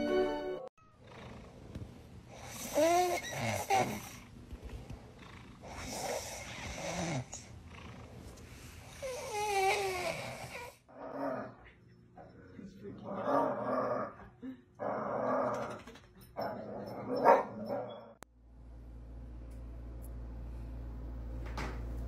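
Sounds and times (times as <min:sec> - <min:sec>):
cat snoring: 0:01.0 - 0:04.3, 0:05.1 - 0:10.8.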